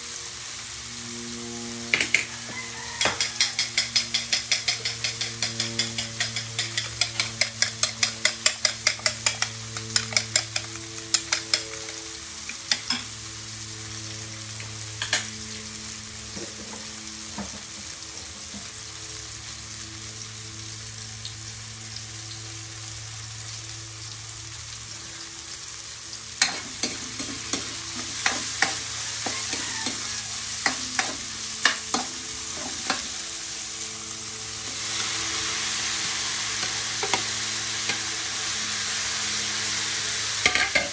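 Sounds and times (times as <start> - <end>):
steady low hum: 0.0 - 2.2
vegetables sizzling in a wok: 0.0 - 40.9
spatula scraping and tapping pan: 1.9 - 13.1, 26.4 - 33.2, 36.0 - 38.1, 40.4 - 40.9.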